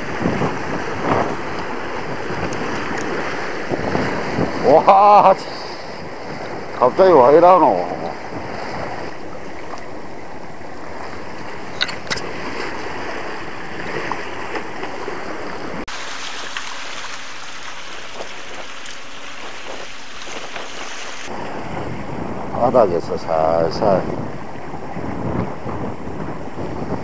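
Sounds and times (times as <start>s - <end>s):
seawater splashing against rocks: 0.0s - 6.8s, 7.9s - 21.7s
wind on microphone: 0.0s - 27.0s.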